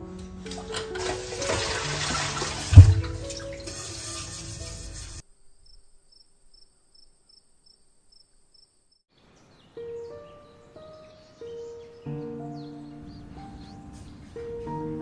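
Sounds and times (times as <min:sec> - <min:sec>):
soft background music: 0:00.0 - 0:05.2, 0:09.7 - 0:15.0
tap water running into pot: 0:00.4 - 0:04.6
loud dull knock: 0:02.7 - 0:03.2.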